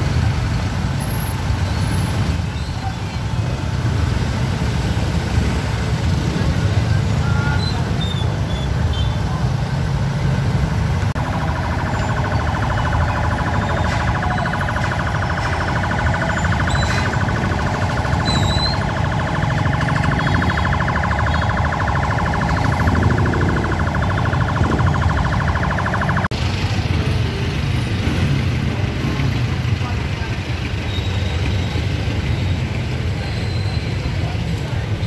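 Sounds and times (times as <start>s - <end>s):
low rumble of traffic engines: 0.0s - 35.0s
pulsing electronic siren: 11.1s - 26.4s.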